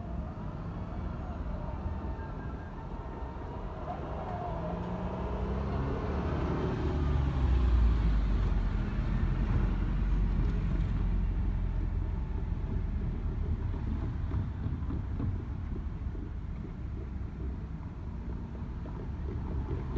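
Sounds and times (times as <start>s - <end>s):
train wheel rumble: 9.5s - 19.9s.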